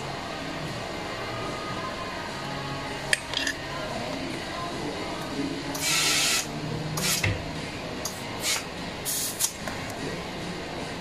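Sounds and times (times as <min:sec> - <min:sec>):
pneumatic tool air hissing: 0:05.8 - 0:07.3, 0:08.4 - 0:09.6.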